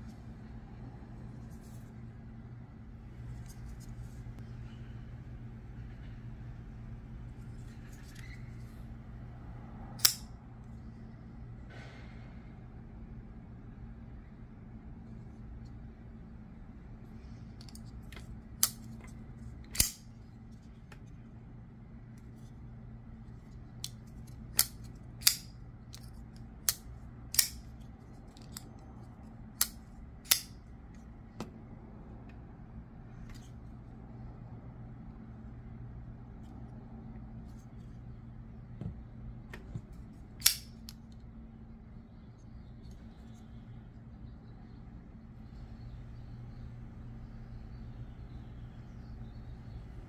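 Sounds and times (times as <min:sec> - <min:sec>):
folding knife clicking open and shut: 0:10.0 - 0:10.3, 0:17.6 - 0:18.9, 0:19.7 - 0:20.1, 0:23.8 - 0:27.7, 0:29.6 - 0:30.5, 0:40.4 - 0:41.0
knife blade locking click: 0:40.4 - 0:40.7.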